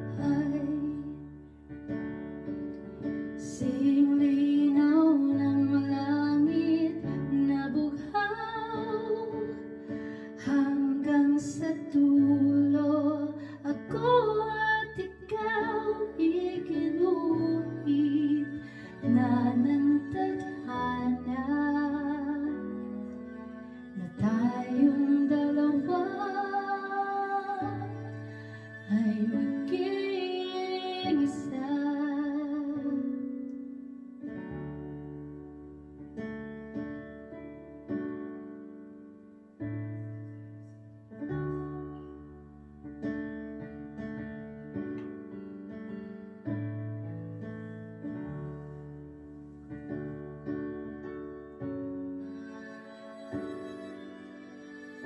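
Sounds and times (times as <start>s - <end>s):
woman singing ballad: 0.0s - 1.3s, 3.4s - 9.6s, 10.4s - 23.2s, 24.0s - 33.2s
karaoke backing track: 10.4s - 33.0s.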